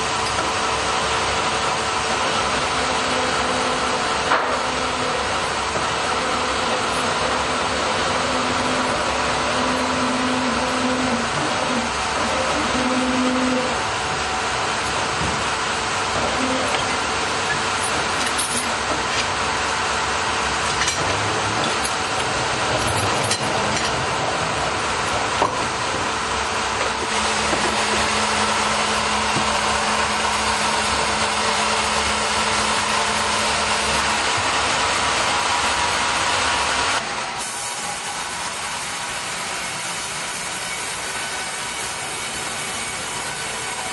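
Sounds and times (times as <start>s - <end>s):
sawmill machinery running: 0.0s - 43.9s.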